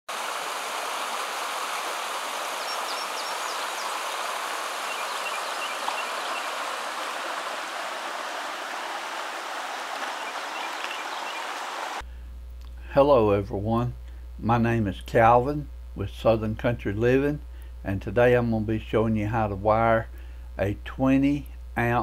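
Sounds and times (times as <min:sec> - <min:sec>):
stream rushing over rocks: 0:00.1 - 0:12.0.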